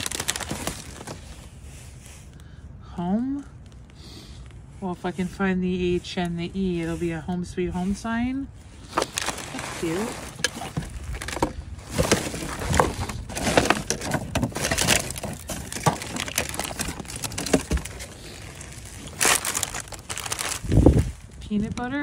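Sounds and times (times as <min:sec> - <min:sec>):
packages knocking together: 0:00.0 - 0:01.2, 0:08.9 - 0:20.7
plastic bags crinkling: 0:00.0 - 0:01.8, 0:08.7 - 0:22.0.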